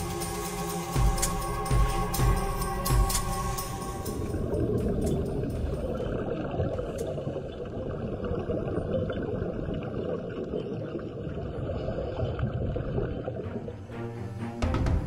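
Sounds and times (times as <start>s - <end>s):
muffled underwater rush: 4.2s - 13.9s.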